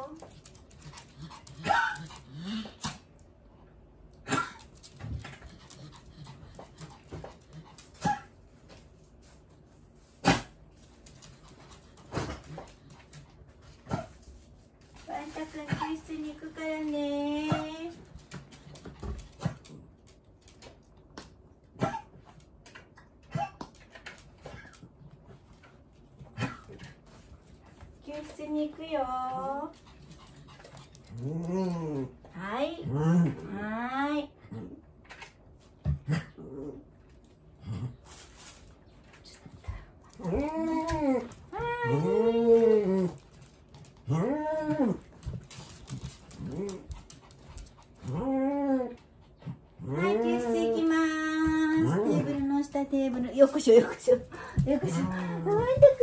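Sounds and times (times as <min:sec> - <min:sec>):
dog coughing: 0:01.6 - 0:02.1, 0:04.2 - 0:04.7, 0:21.8 - 0:22.2.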